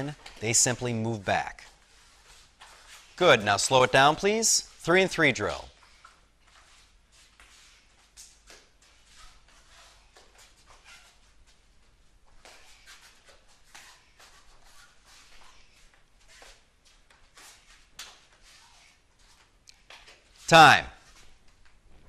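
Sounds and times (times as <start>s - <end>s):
sneakers scuffing on rubber floor: 1.6s - 3.2s, 5.8s - 21.8s.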